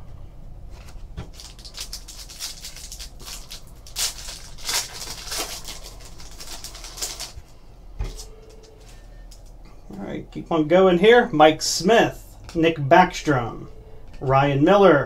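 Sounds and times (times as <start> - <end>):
foil wrapper crinkling and tearing: 1.2 - 7.5.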